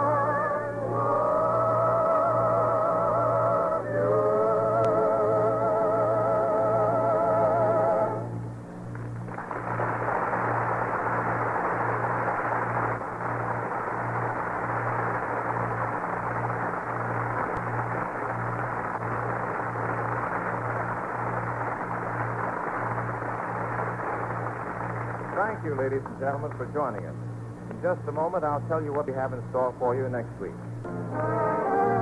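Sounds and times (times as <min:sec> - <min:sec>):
low pulsing hum: 0:00.0 - 0:32.0
audience applauding: 0:08.9 - 0:27.0.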